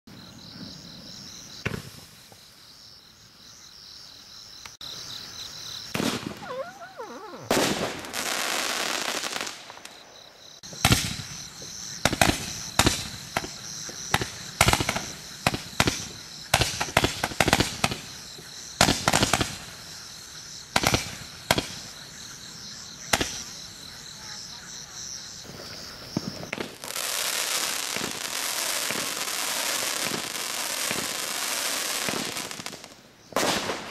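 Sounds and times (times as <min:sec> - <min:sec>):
firework hissing trails: 0:05.9 - 0:10.0, 0:26.0 - 0:33.9
firework sharp bangs: 0:05.9 - 0:18.2, 0:26.1 - 0:33.9.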